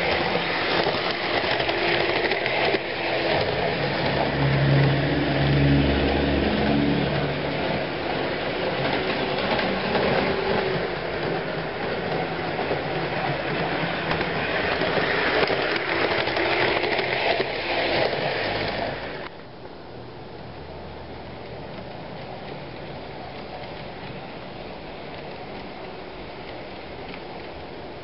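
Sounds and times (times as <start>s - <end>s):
model freight cars clattering: 0.0s - 5.0s, 6.0s - 19.3s
model train rattling on track: 0.0s - 19.4s, 21.4s - 28.0s.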